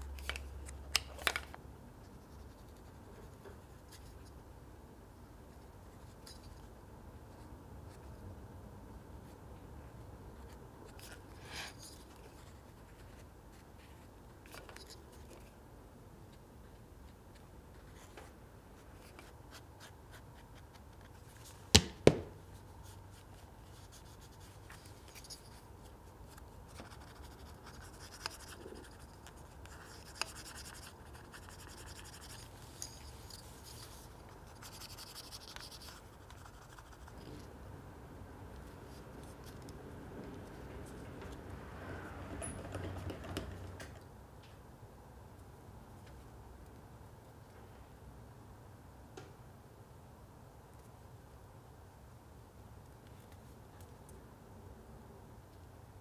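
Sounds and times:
sharp knocks: 0:21.8 - 0:22.4.

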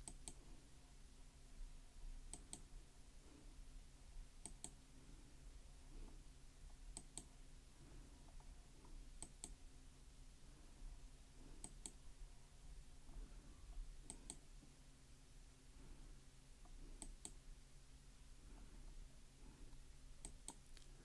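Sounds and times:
faint sharp clicks: 0:00.0 - 0:00.4, 0:02.3 - 0:02.7, 0:04.4 - 0:04.8, 0:06.7 - 0:07.3, 0:08.3 - 0:09.6, 0:14.0 - 0:14.4, 0:16.6 - 0:17.4, 0:20.2 - 0:21.0
low steady hum: 0:00.0 - 0:21.0.

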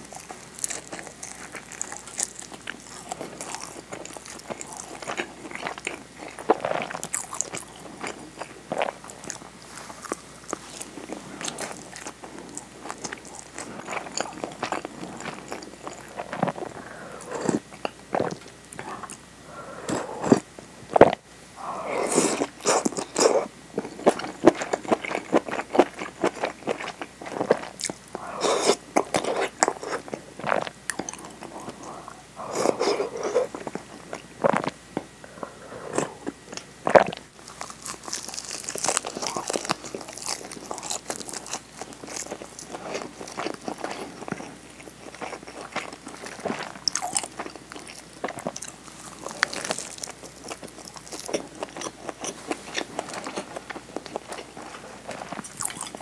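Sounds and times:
person chewing crunchy food: 0:00.0 - 0:56.0
crisp crackle of biting: 0:36.6 - 0:56.0.

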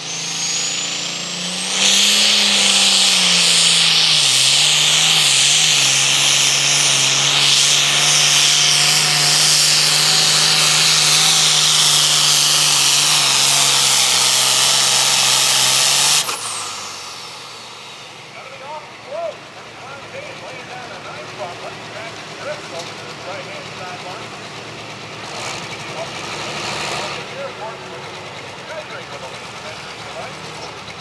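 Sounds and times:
high whine: 0:00.0 - 0:19.1
tractor engine at full throttle: 0:00.0 - 0:31.0.

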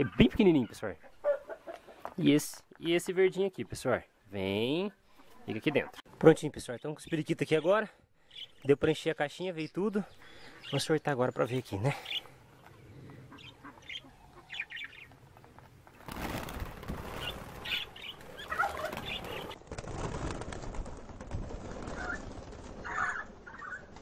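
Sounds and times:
wings fluttering: 0:12.0 - 0:24.0
budgerigars chirping: 0:13.3 - 0:15.1.

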